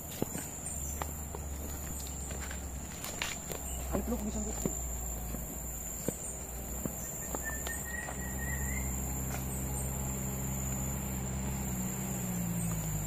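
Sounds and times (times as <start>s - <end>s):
footsteps on dirt path: 0.0s - 13.0s
high insect drone: 0.0s - 13.0s
whistled bird call: 7.0s - 9.1s.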